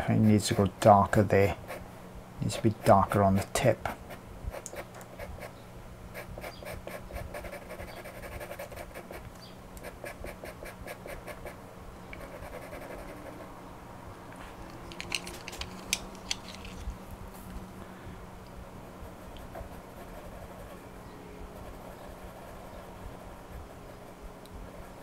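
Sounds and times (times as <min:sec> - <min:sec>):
pencil scratching on paper: 0:06.2 - 0:09.2, 0:12.2 - 0:13.4, 0:19.0 - 0:20.8.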